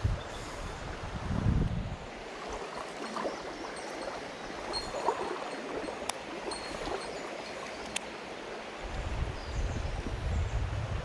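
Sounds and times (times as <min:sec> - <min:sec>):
stream water flowing: 0:00.0 - 0:10.5.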